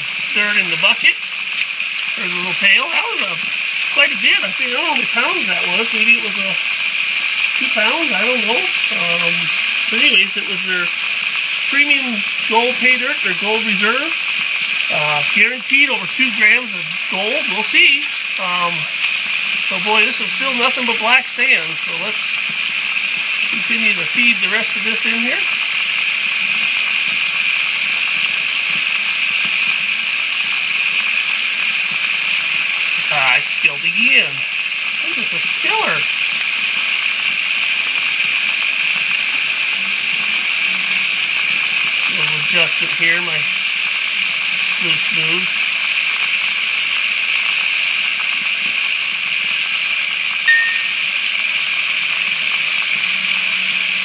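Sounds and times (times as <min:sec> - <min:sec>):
water pouring and splashing: 0:00.0 - 0:54.0
water rushing through sluice: 0:02.1 - 0:06.6, 0:07.6 - 0:14.3.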